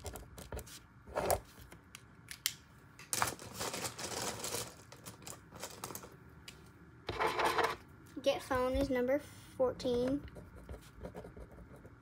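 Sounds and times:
pen scratching on paper: 0:10.2 - 0:12.0.

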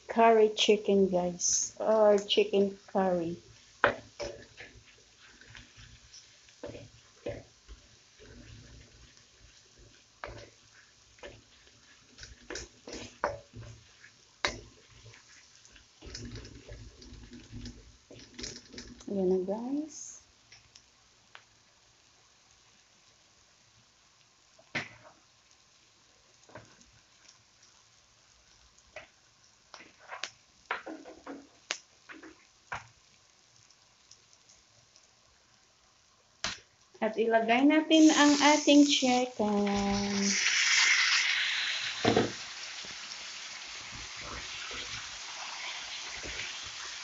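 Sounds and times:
hot oil popping and crackling: 0:00.0 - 0:37.1, 0:37.7 - 0:47.0
onions frying: 0:00.0 - 0:47.0
spatula scraping a wok: 0:03.4 - 0:18.6, 0:38.0 - 0:43.1, 0:43.7 - 0:47.0.

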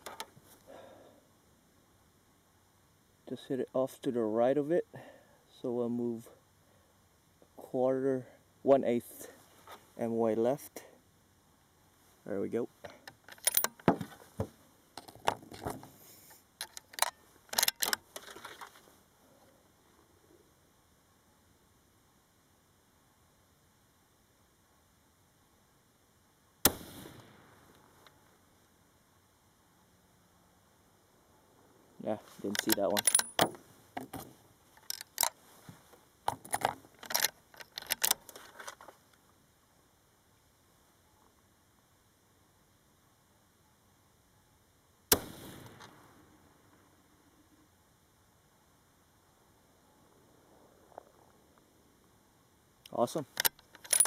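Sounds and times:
metallic clicks of rifle gear: 0:00.0 - 0:00.4, 0:12.8 - 0:14.2, 0:15.0 - 0:18.9, 0:32.3 - 0:35.4, 0:36.2 - 0:39.2, 0:53.0 - 0:54.0
gear clicking and rattling: 0:32.4 - 0:35.4, 0:36.2 - 0:38.9, 0:53.3 - 0:54.0.

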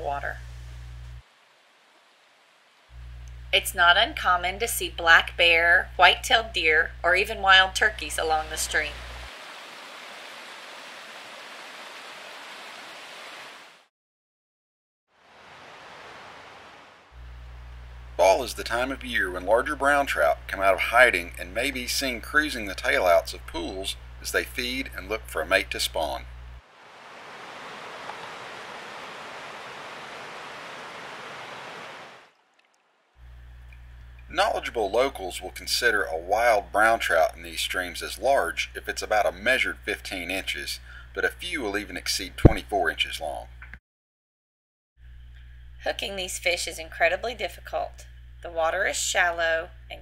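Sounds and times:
mountain stream rushing: 0:08.9 - 0:13.8, 0:15.2 - 0:17.1, 0:26.6 - 0:32.3.

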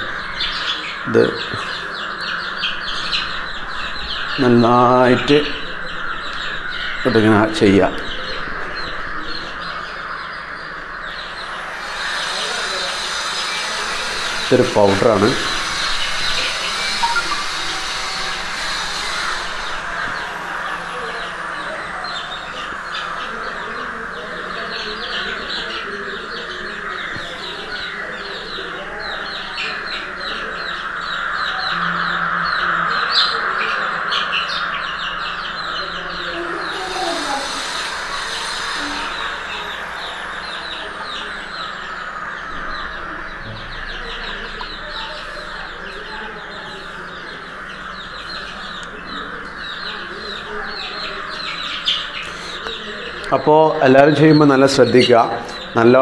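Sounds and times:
chicks peeping: 0:00.0 - 0:56.0
steady hiss: 0:11.8 - 0:22.0.

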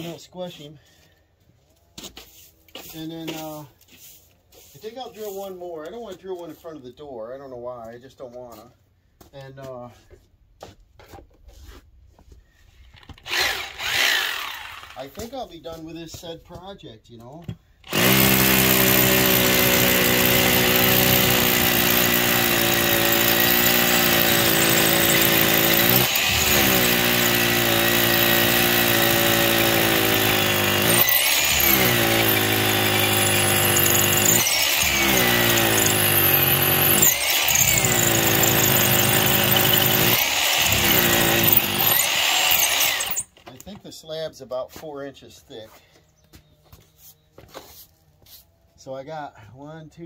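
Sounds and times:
power drill boring into concrete: 0:13.1 - 0:15.2, 0:17.9 - 0:43.5.

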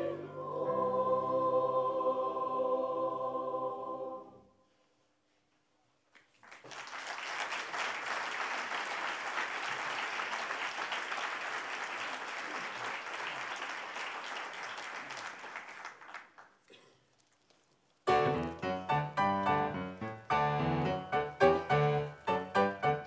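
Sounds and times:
audience applauding: 0:06.2 - 0:16.8.

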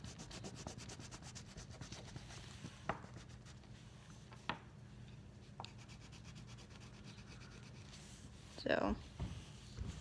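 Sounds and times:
coloring strokes scratching on paper: 0:00.0 - 0:03.6, 0:05.7 - 0:08.2.

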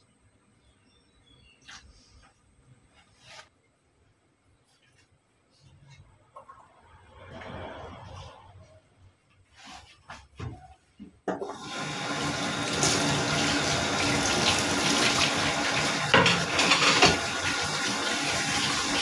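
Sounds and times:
tap water running into sink: 0:11.3 - 0:19.0.

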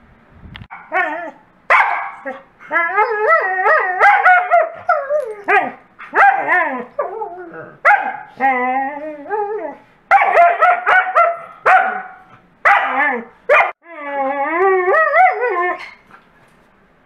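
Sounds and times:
dog barks: 0:01.7 - 0:02.4, 0:04.0 - 0:04.8, 0:05.5 - 0:06.6, 0:07.8 - 0:08.4, 0:10.1 - 0:13.8
dogs warbling howls: 0:02.2 - 0:12.1, 0:12.7 - 0:16.0.

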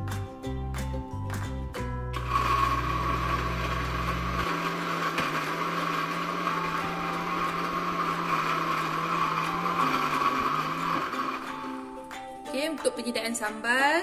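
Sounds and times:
blender grinding: 0:02.1 - 0:12.2.

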